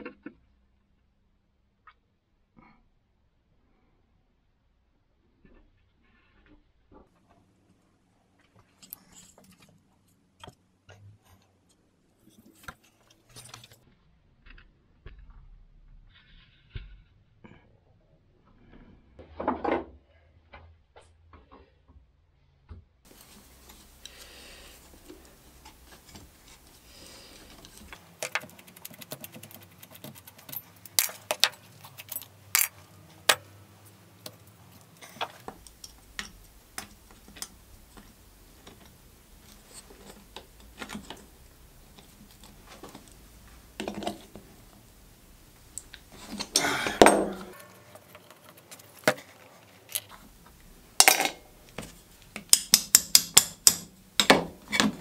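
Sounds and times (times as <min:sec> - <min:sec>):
metal fittings clinking and scraping: 0:12.2 - 0:13.8, 0:23.1 - 0:55.0
pliers tapping and clicking: 0:52.3 - 0:54.4.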